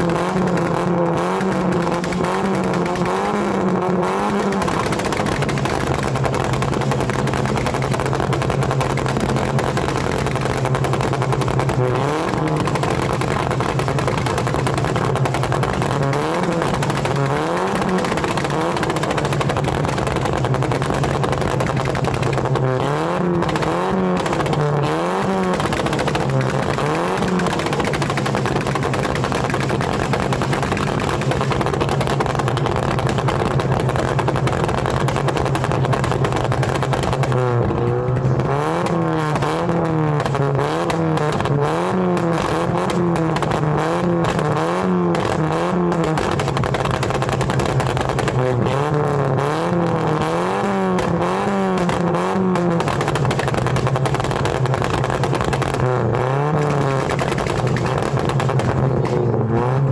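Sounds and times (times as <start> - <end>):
car engine revving and idling: 0.0 - 59.9
exhaust popping and crackling: 0.0 - 59.9.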